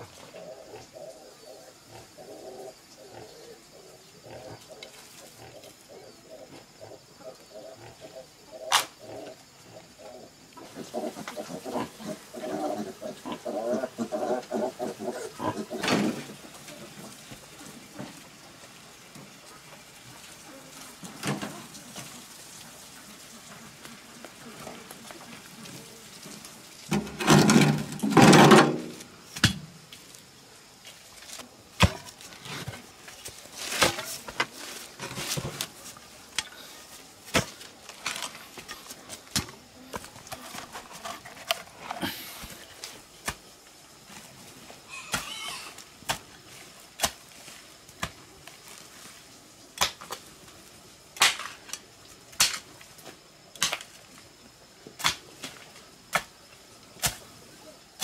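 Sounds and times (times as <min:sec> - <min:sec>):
hoe blade chopping into earth: 0:52.3 - 0:52.6.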